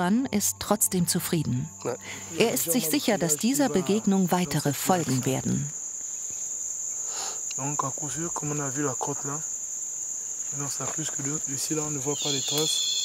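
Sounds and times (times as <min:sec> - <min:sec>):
person speaking: 0:00.0 - 0:05.7
high-pitched insect drone: 0:00.0 - 0:13.0.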